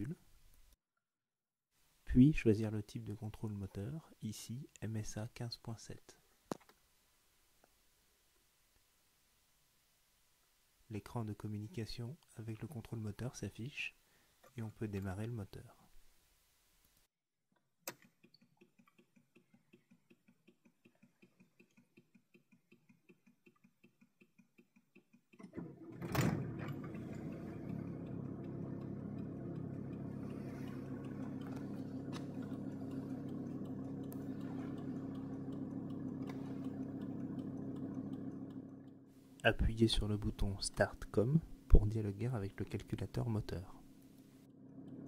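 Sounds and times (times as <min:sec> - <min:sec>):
faint regular ticking: 0:18.2 - 0:25.4, 0:27.1 - 0:45.0
diesel engine starting and idling: 0:25.6 - 0:39.1
click: 0:26.8 - 0:38.6.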